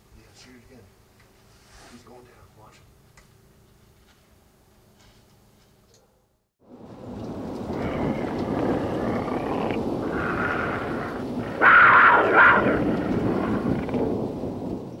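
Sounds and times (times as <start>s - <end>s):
rumbling roar: 6.7s - 15.0s.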